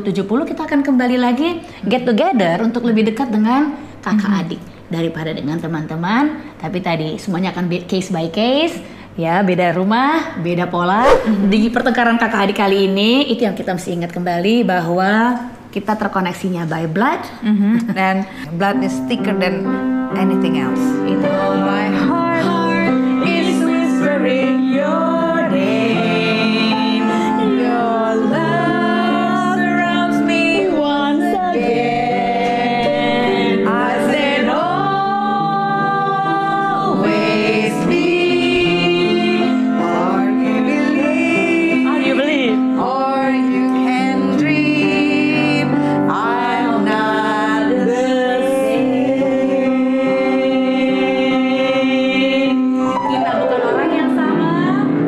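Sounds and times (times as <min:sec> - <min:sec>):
upright piano: 0:18.3 - 0:55.0
women singing slow song: 0:20.9 - 0:55.0.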